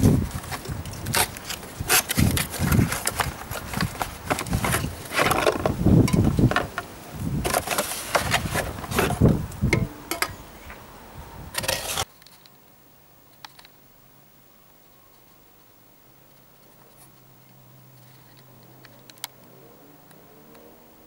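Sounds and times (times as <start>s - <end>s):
cardboard box handling noise: 0.0s - 6.8s, 7.4s - 9.4s.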